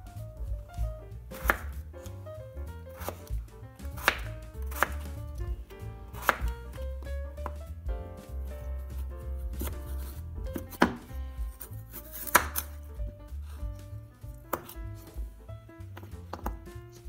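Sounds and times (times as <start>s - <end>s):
knife slicing carrot on board: 0.7s - 2.2s, 2.9s - 7.6s, 8.2s - 15.3s, 16.0s - 17.0s.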